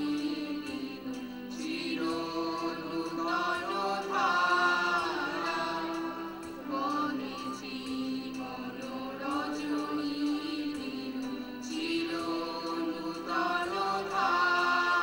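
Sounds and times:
group of voices singing: 0.0 - 15.0.

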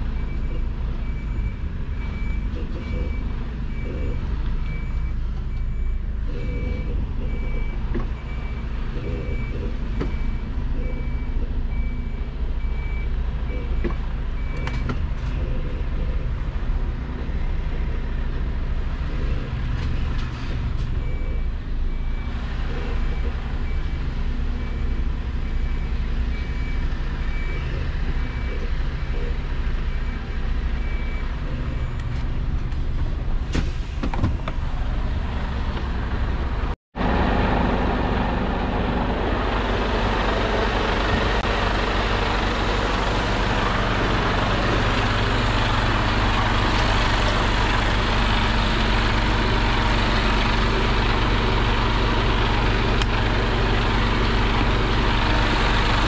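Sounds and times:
diesel engine running: 0.0 - 56.0
reversing alarm beeps: 0.2 - 16.2, 20.9 - 32.2.

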